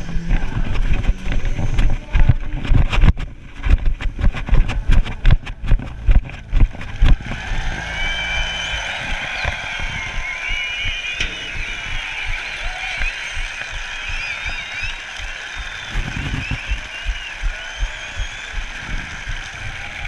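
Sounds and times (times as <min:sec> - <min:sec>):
microphone handling noise: 0:00.0 - 0:07.8, 0:15.8 - 0:17.2
wind rumbling on microphone: 0:00.0 - 0:10.6, 0:15.9 - 0:17.5.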